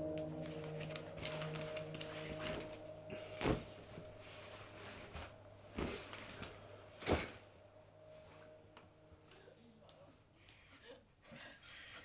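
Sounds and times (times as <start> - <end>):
rustling of nylon bag and clothes: 0.0 - 8.7
held music tone: 0.0 - 10.5
fabric brushing: 0.5 - 6.5.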